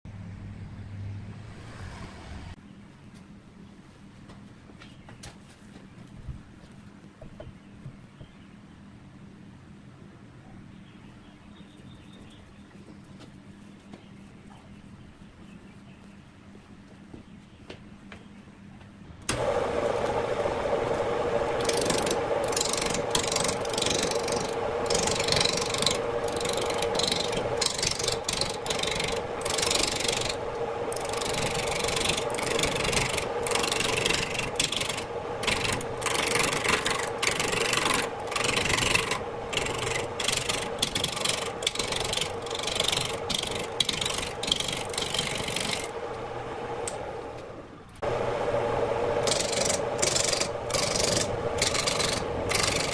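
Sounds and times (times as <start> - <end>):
turning tool cutting log: 19.3 - 47.1, 48.0 - 52.9
wood lathe humming: 19.3 - 52.9.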